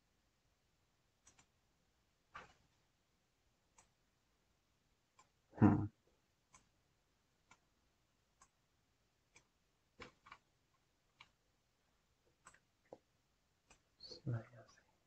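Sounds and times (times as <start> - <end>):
computer mouse clicks: 1.2 - 1.5, 3.7 - 4.0, 9.3 - 10.5, 11.1 - 11.4, 12.3 - 13.0.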